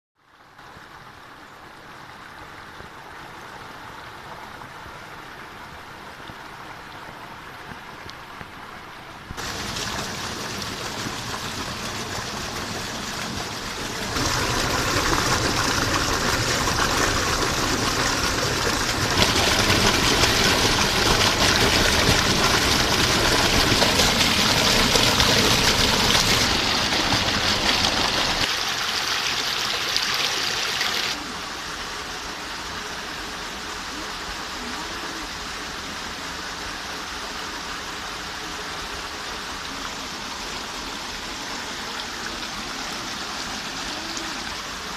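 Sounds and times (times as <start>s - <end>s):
stream rushing over rocks: 0.4s - 44.9s
waterfall plunging into pool: 9.3s - 31.8s.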